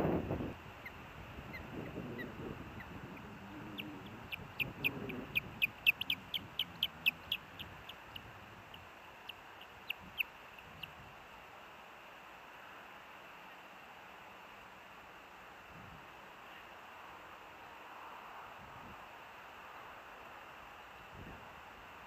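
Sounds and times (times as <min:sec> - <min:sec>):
ospreys chirping: 0:00.8 - 0:11.0.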